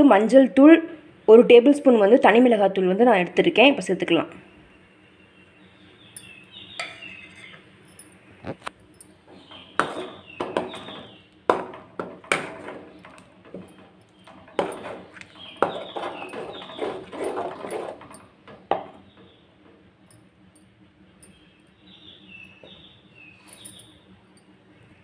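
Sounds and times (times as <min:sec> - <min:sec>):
metal spoon scraping a pot: 0:06.8 - 0:07.7, 0:09.3 - 0:11.2, 0:12.0 - 0:18.8.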